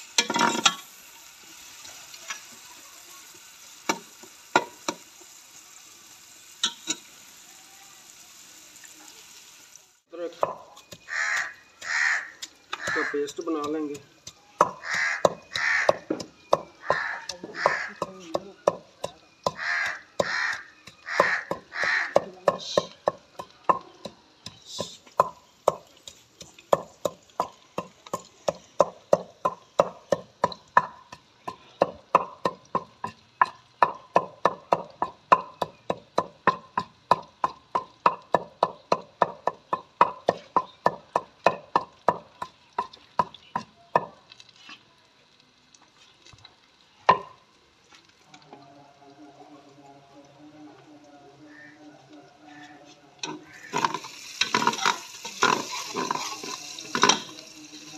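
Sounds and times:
pestle pounding in stone mortar: 0:10.4 - 0:44.2, 0:47.1 - 0:47.3, 0:53.7 - 0:57.3
loud bird calls: 0:10.8 - 0:13.4, 0:14.6 - 0:18.1, 0:19.4 - 0:22.3, 0:53.4 - 0:54.0.

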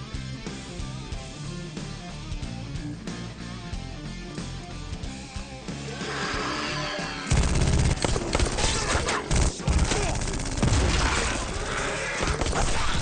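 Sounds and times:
guns firing in rapid volleys: 0:07.3 - 0:13.0.

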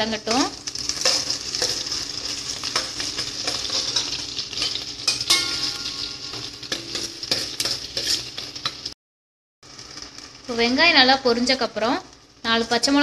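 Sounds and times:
shallots sizzling in hot oil: 0:00.0 - 0:09.0, 0:09.6 - 0:13.0
ladle scraping and clinking pan: 0:01.0 - 0:08.9.

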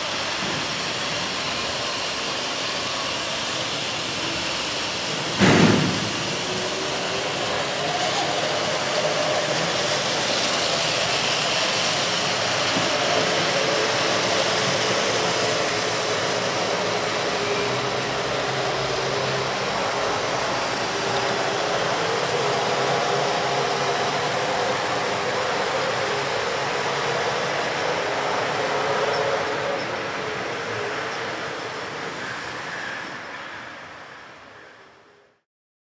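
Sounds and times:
model train motor hiss and whine: 0:00.0 - 0:35.4.

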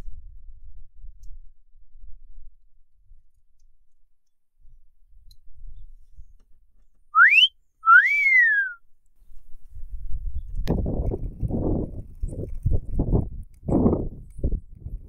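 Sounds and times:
wolf whistle: 0:07.2 - 0:08.8.

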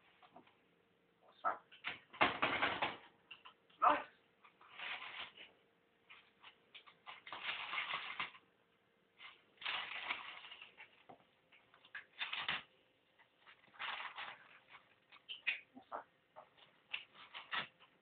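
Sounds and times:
parrot crumpling newspaper: 0:04.5 - 0:05.5, 0:06.2 - 0:08.4, 0:09.2 - 0:11.1, 0:11.8 - 0:12.7, 0:13.4 - 0:15.7.

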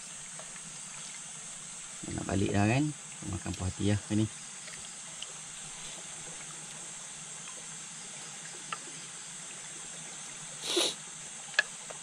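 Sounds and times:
broth simmering with steady hiss: 0:00.0 - 0:12.0.

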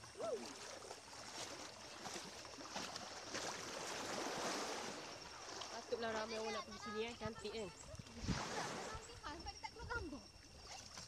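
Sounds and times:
water splashing around legs: 0:00.0 - 0:06.5, 0:10.4 - 0:11.0
small waves washing ashore: 0:00.0 - 0:11.0.

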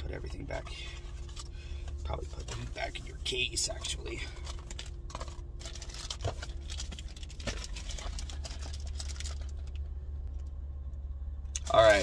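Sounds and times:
low hum inside a car: 0:00.0 - 0:12.0
cardboard packaging rustling: 0:03.8 - 0:09.9.

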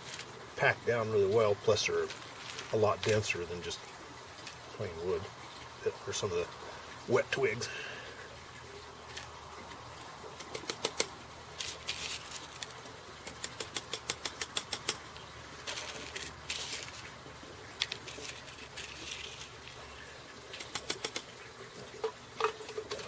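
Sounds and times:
gloved hands rustling: 0:10.4 - 0:15.0, 0:15.6 - 0:19.8.

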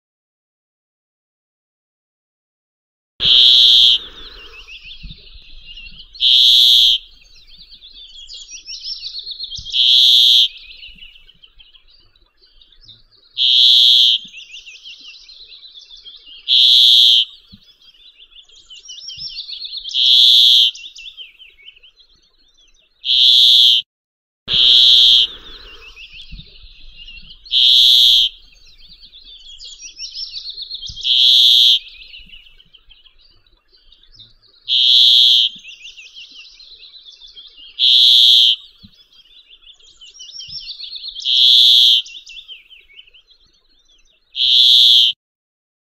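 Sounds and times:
bird buzzing call: 0:03.2 - 0:05.1, 0:06.2 - 0:07.2, 0:09.6 - 0:10.6, 0:13.4 - 0:14.3, 0:16.5 - 0:17.3, 0:20.0 - 0:20.8, 0:23.0 - 0:23.8, 0:24.5 - 0:26.4, 0:27.5 - 0:28.5, 0:31.0 - 0:32.0, 0:34.7 - 0:35.6, 0:37.8 - 0:38.6, 0:41.2 - 0:42.1, 0:44.4 - 0:45.2
bird twittering: 0:03.2 - 0:23.8, 0:24.5 - 0:45.2.

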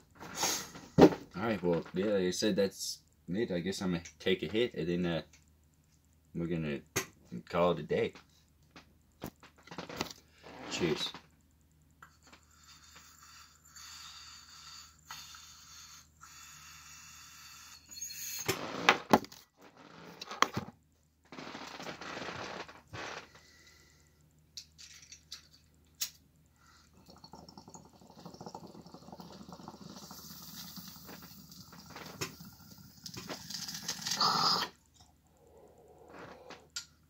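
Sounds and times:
water bubbling in a bong: 0:26.8 - 0:33.2.

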